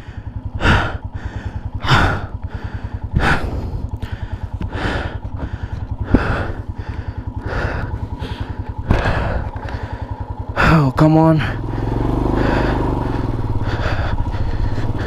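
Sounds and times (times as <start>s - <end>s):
heavy breathing: 0.0s - 15.0s
motorcycle engine running: 0.0s - 15.0s.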